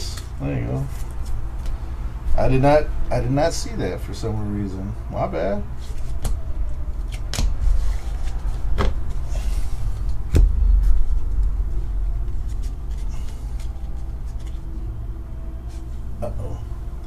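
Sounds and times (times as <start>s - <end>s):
low rumble: 8.0s - 15.1s.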